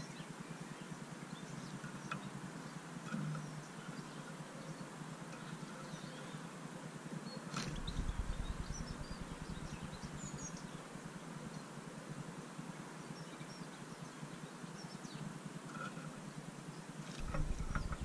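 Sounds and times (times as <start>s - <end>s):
steady background hum: 0.0s - 18.0s
high bird chirps: 7.7s - 10.8s
low rumble: 7.7s - 10.9s, 17.2s - 18.0s.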